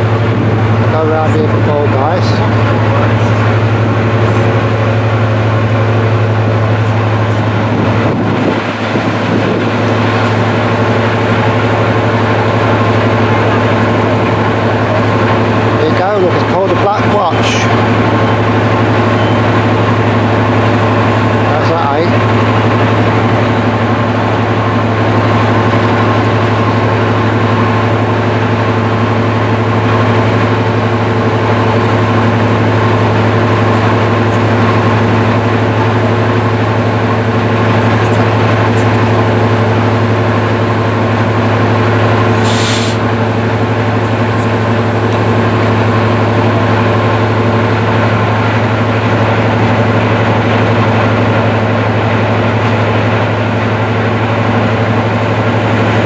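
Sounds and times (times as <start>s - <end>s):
diesel locomotive idling: 0.0s - 56.0s
short hiss: 42.4s - 43.0s.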